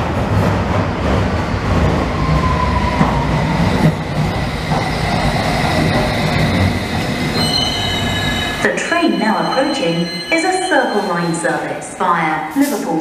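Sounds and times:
train rumbling on track: 0.0 - 13.0
faint falling squeal: 7.1 - 11.5.

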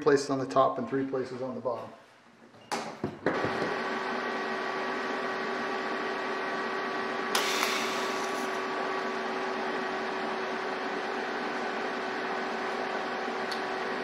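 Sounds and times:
welding arc buzzing: 7.3 - 9.1.

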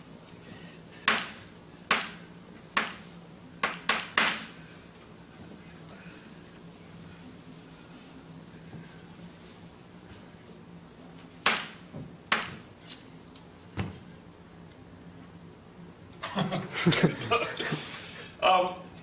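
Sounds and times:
marker tapping on whiteboard: 1.1 - 2.2, 2.8 - 3.0, 3.6 - 4.5, 11.4 - 12.6.

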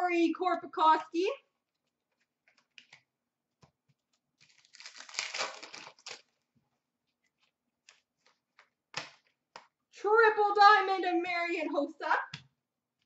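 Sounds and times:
packaging crinkling and rustling: 4.4 - 6.5.

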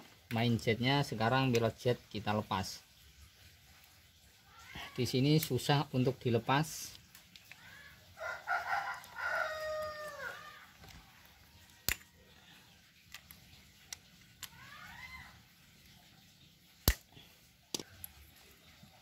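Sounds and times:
rooster crowing: 8.2 - 10.8.

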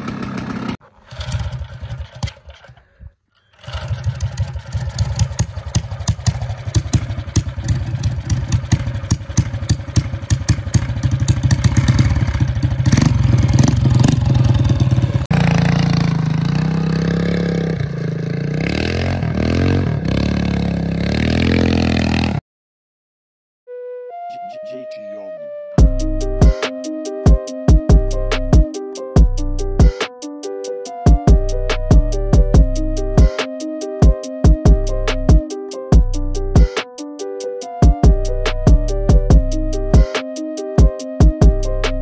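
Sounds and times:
small gas engine revving: 0.0 - 22.4.

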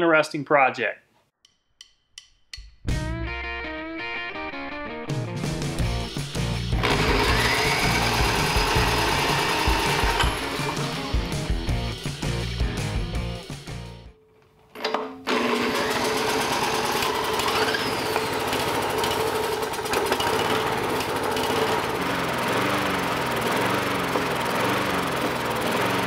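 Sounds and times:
music: 1.4 - 14.2
lawn mower engine running: 5.6 - 13.6, 14.8 - 26.0.

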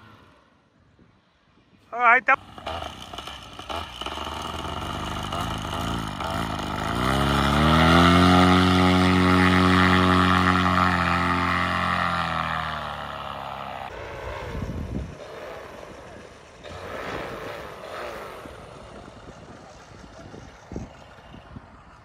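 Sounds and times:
paramotor engine and propeller: 0.0 - 22.0
wind rumbling on microphone: 13.9 - 22.0.

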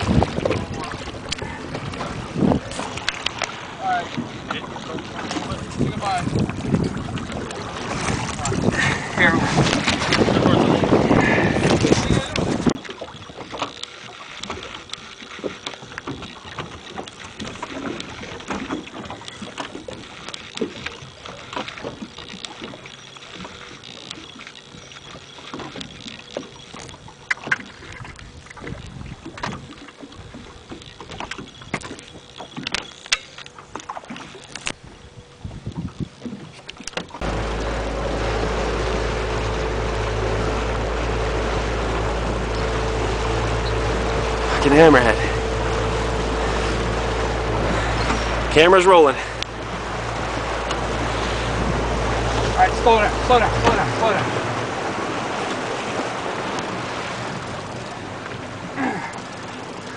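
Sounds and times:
water splashing against boat hull: 0.0 - 59.9
loud rumbling with hum: 37.2 - 59.9.

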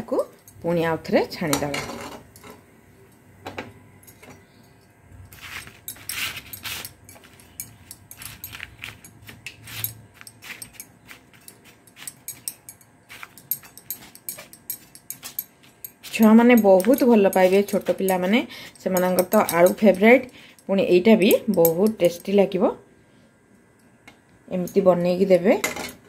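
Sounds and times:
spoon clicking and scraping: 4.0 - 22.5.

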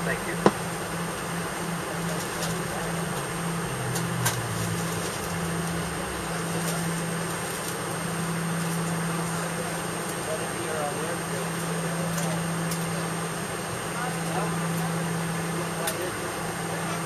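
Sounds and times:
jet engines idling: 0.0 - 17.0.

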